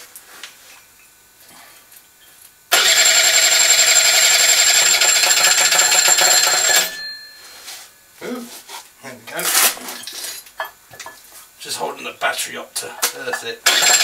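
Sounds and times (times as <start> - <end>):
engine cranking by starter: 2.7 - 6.2, 13.6 - 14.0.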